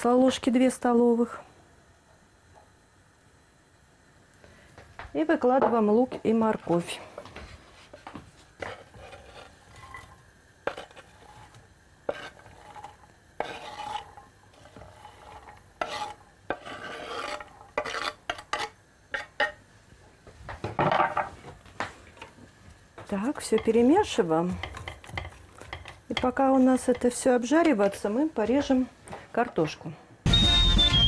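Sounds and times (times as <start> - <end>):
knife scraping a cutting board: 7.8 - 19.6.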